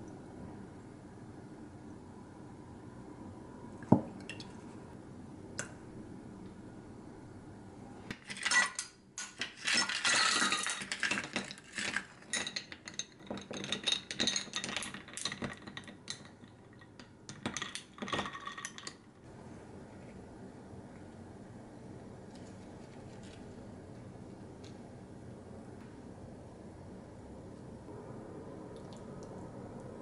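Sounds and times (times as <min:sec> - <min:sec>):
ice cubes clinking in a glass: 0:08.2 - 0:19.0.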